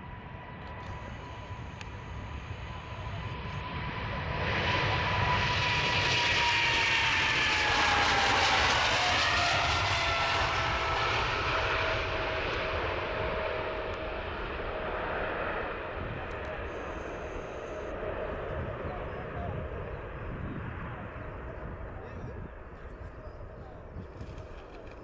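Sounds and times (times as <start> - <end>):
jet engine whine: 0.0 - 25.0
jet engines roaring on takeoff: 0.0 - 25.0.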